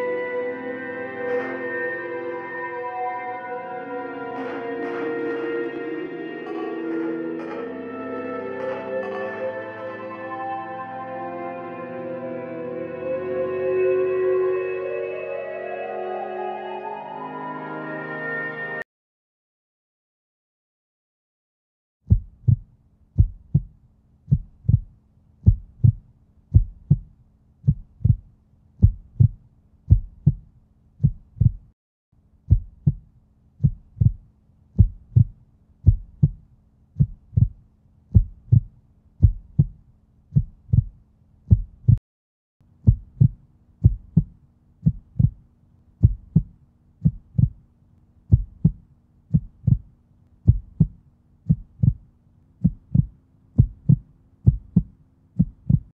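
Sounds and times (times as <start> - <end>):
heartbeat thumps: 22.1 - 31.8, 32.5 - 42.0, 42.8 - 45.4, 46.0 - 47.6, 48.3 - 55.9.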